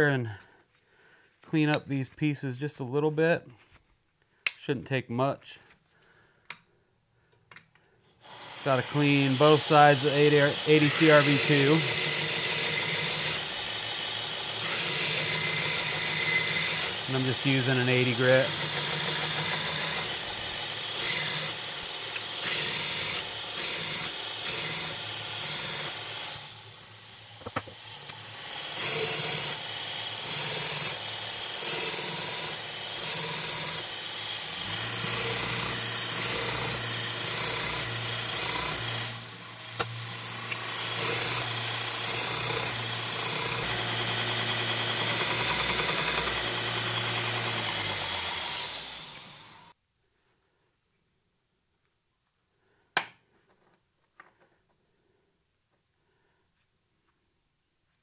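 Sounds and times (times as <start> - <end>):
grinder rasping on steel: 8.3 - 49.7.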